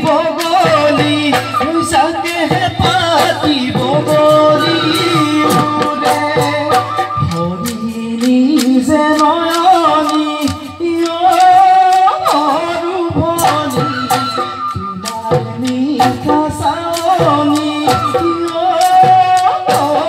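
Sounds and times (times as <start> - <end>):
folk instruments: 0.0 - 20.0
person singing melody: 0.0 - 20.0
steady drum beat: 0.0 - 20.0.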